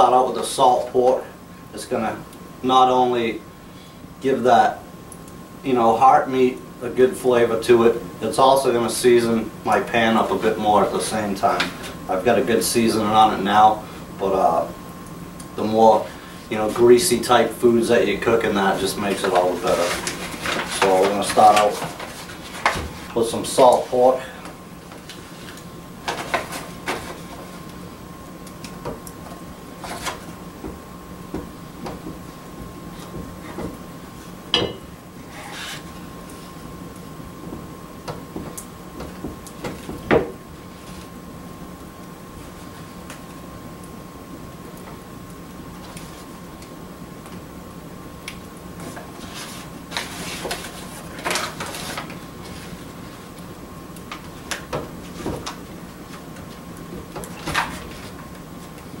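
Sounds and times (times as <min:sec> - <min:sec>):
paper wrapping crinkling: 0:18.7 - 0:24.1, 0:48.8 - 0:53.4.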